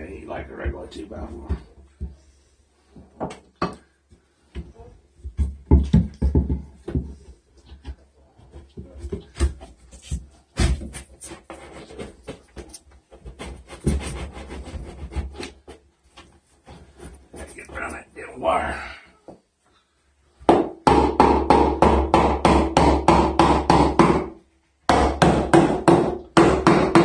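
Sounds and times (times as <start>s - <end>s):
wooden board knocking and scraping: 4.6s - 17.2s.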